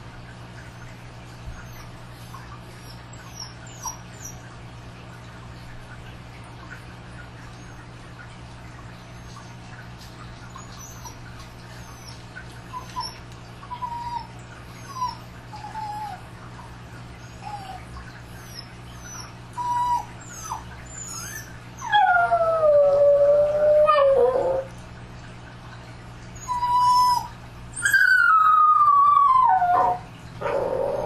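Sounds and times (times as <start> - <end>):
dog whining: 2.7 - 4.5, 10.5 - 16.3, 17.2 - 24.7, 26.4 - 31.0
dog howling: 18.5 - 24.7, 26.4 - 31.0.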